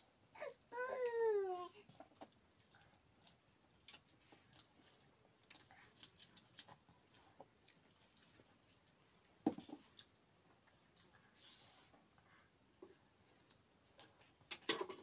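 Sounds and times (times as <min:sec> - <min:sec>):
small child crying: 0:00.4 - 0:01.8.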